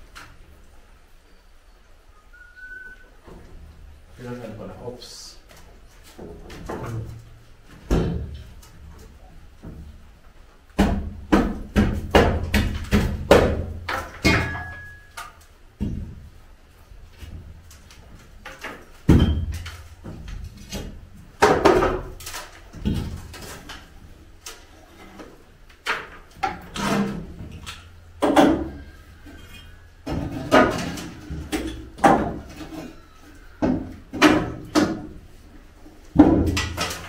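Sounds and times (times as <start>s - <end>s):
boards clattering: 17.1s - 37.0s.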